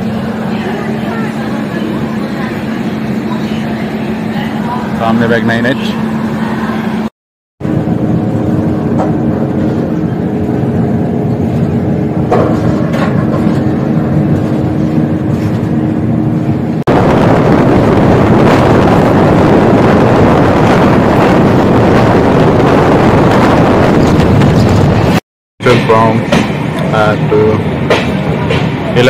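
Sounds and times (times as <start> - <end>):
train wheels rumbling on track: 0.0 - 29.0
rush of wind: 6.0 - 25.2.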